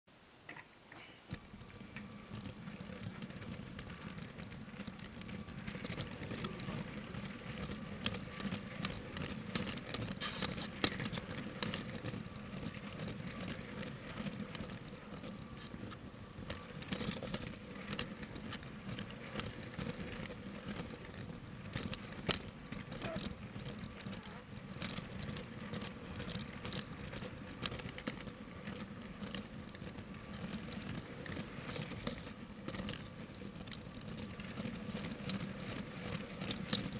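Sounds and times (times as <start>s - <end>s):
wheels clicking and rattling on track: 0.5s - 36.9s
toy train motor hum: 1.3s - 36.9s.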